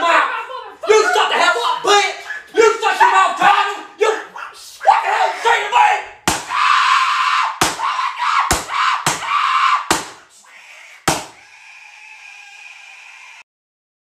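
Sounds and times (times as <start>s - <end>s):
loud screaming: 4.8s - 13.4s
sharp bangs and thuds: 6.3s - 6.6s, 7.6s - 7.9s, 8.5s - 9.3s, 9.9s - 10.2s, 11.1s - 11.4s.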